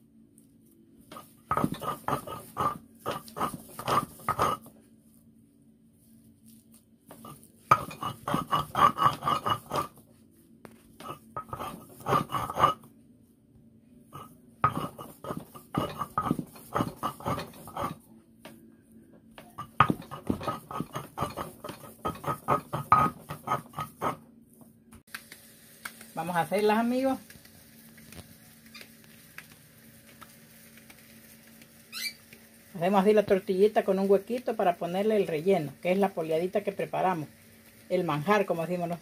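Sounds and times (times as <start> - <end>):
stone grinding on stone: 1.1 - 4.7, 7.1 - 10.0, 11.0 - 12.9, 14.1 - 18.0, 19.5 - 24.2.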